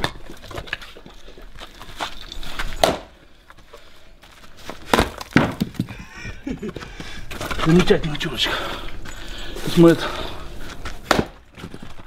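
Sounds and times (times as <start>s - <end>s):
axe chopping firewood: 2.8s - 3.2s, 4.7s - 6.0s, 11.0s - 12.0s.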